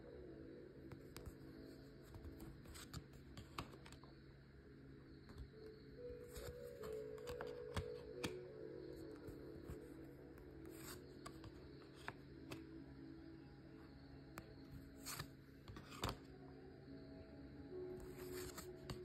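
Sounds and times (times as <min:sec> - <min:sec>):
soft background music: 0:00.0 - 0:19.0
cards clicking and swishing: 0:06.2 - 0:08.4, 0:15.0 - 0:16.2, 0:18.1 - 0:19.0.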